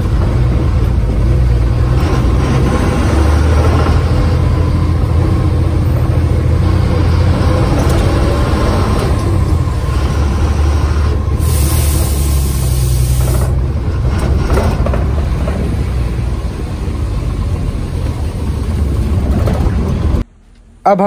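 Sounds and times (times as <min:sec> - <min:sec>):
bus engine drone: 0:00.0 - 0:21.0
road noise: 0:00.0 - 0:21.0
high hiss of air: 0:11.4 - 0:13.4.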